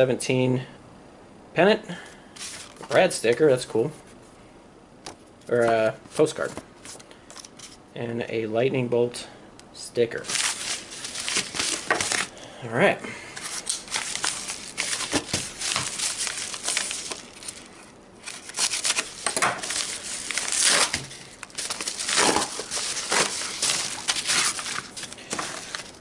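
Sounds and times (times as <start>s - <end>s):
paper envelope being torn open: 10.2s - 12.3s, 13.4s - 26.0s.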